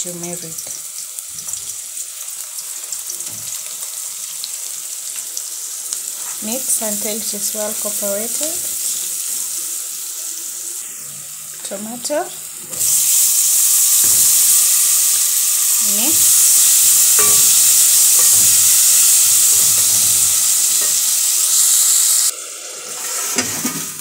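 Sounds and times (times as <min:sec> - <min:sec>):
tomatoes sizzling in hot oil: 0:00.0 - 0:24.0.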